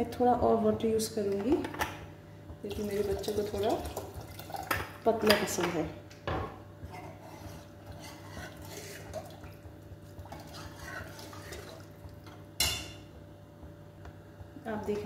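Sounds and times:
water pouring into pot: 0:02.7 - 0:05.0, 0:08.5 - 0:12.3
spoon scraping pot: 0:06.8 - 0:09.4, 0:10.3 - 0:11.8.

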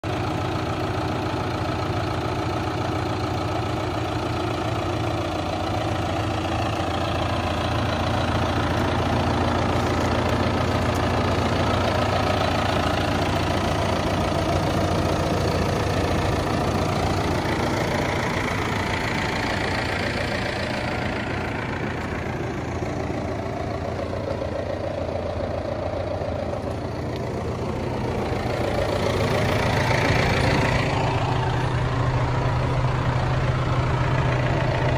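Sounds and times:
tractor diesel engine idling: 0:00.0 - 0:34.9.

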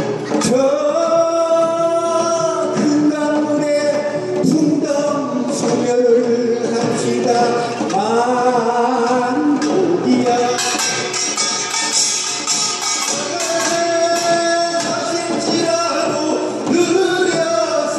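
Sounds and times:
man singing unaccompanied: 0:00.0 - 0:17.9
percussion strikes: 0:00.0 - 0:17.9.

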